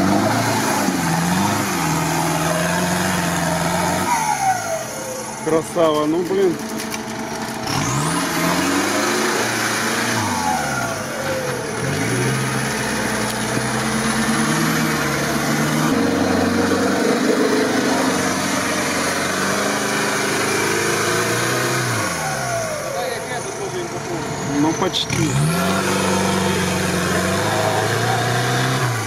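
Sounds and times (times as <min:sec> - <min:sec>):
pickup engine revving hard: 0:00.0 - 0:05.3, 0:07.6 - 0:23.5, 0:24.3 - 0:29.0.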